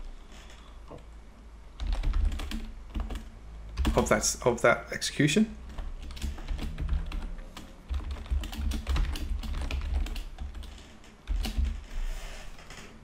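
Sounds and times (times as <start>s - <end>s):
typing on a keyboard: 1.8s - 4.2s, 5.7s - 12.0s.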